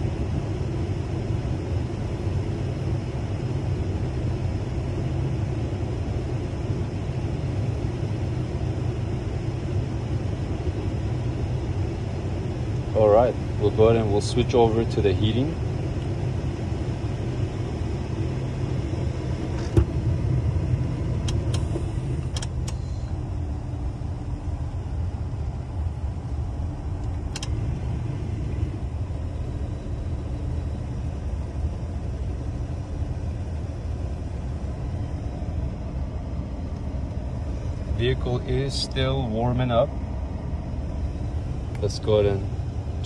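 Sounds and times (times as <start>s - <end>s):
car engine idling: 0.0s - 43.0s
heater control clicks: 21.2s - 22.9s, 27.0s - 27.6s.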